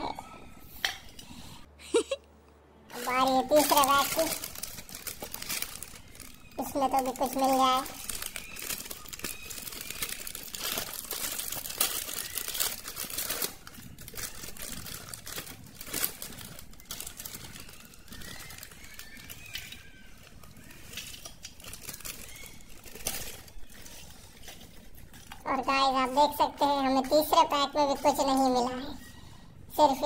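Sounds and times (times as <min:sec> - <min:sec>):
plastic snack packet crinkling: 0:02.9 - 0:26.2.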